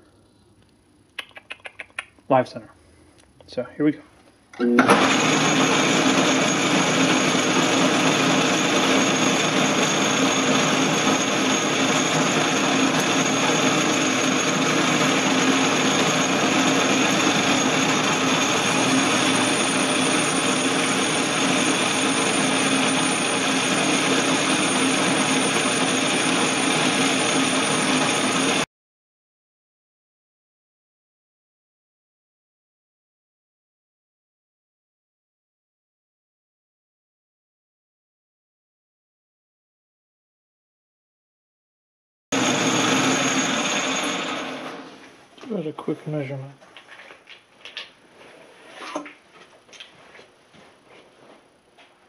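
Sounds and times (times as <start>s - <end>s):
metal lathe turning: 4.8s - 28.6s, 42.4s - 45.1s.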